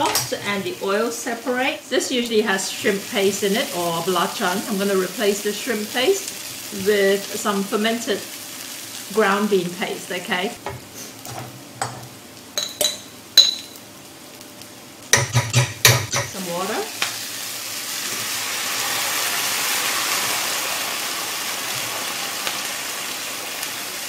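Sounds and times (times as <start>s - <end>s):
paste sizzling in pan: 0.7s - 12.7s, 16.3s - 24.0s
utensils clinking against pan: 11.3s - 13.8s, 15.2s - 16.4s.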